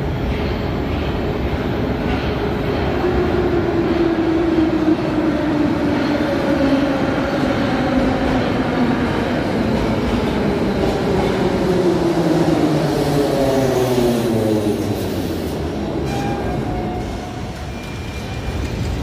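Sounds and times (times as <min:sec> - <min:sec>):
metro train rumbling and rattling: 0:00.0 - 0:19.0
train whine falling in pitch: 0:16.0 - 0:18.5.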